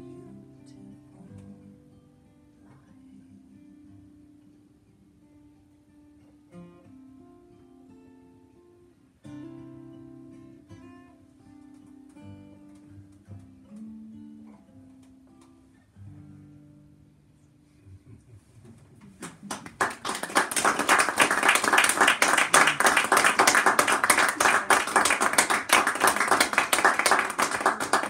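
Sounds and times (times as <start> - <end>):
audience applause: 19.2 - 28.0.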